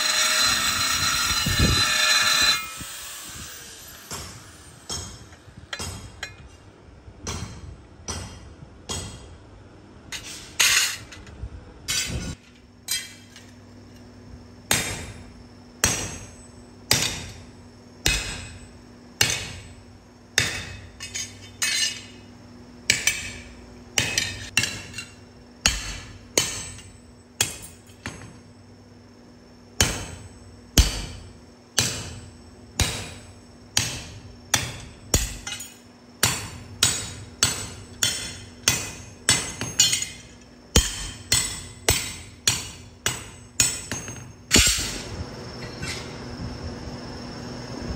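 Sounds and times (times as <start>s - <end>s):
hammer striking metal on anvil: 4.1s - 6.5s, 7.2s - 9.3s, 14.7s - 19.8s, 20.4s - 22.2s, 22.9s - 28.4s, 29.8s - 45.1s.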